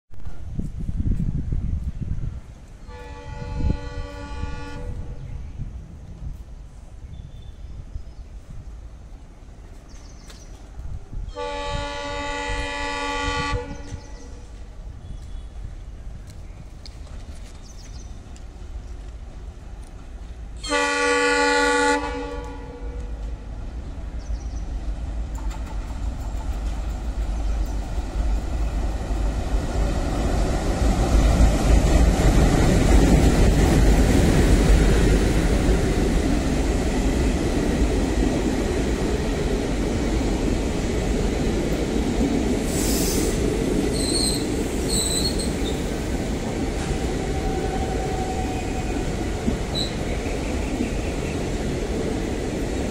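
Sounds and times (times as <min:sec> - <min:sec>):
train rumbling past: 0:00.1 - 0:52.9
locomotive horn blast: 0:02.8 - 0:05.2, 0:11.3 - 0:14.0, 0:20.6 - 0:23.2
high-pitched metallic squeals: 0:43.9 - 0:45.8.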